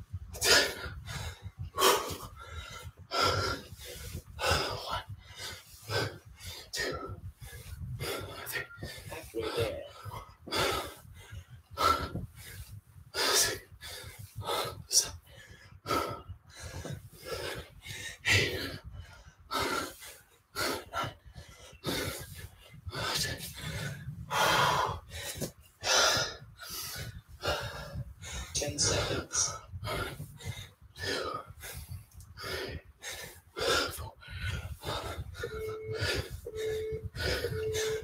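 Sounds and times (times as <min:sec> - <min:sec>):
man breathing hard: 0:00.3 - 0:38.0.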